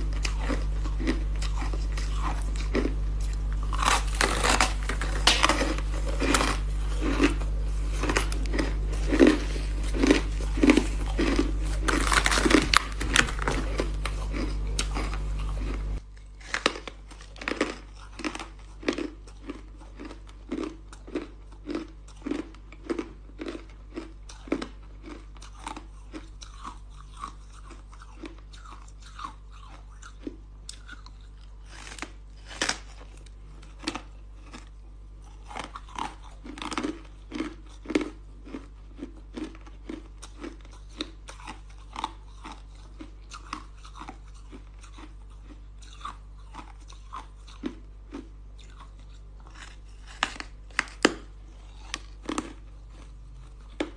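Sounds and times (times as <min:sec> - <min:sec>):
low hum: 0:00.0 - 0:21.0
ice crunching while chewed: 0:00.0 - 0:53.9.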